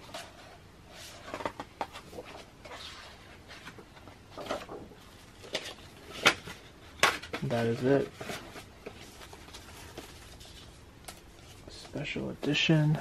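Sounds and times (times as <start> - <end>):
paper pages rustling: 0.0 - 12.6.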